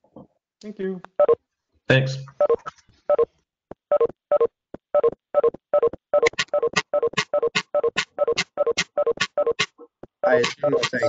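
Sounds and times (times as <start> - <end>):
electronic notification chimes: 10.2 - 11.0.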